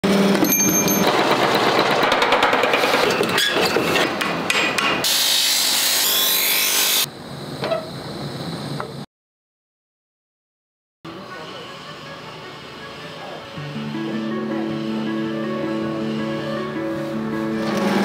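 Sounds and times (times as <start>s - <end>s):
quiet workshop sounds: 0.0s - 9.1s, 11.1s - 18.0s
grinding wheel on steel: 0.1s - 3.9s
power hammer pounding steel: 0.1s - 5.2s.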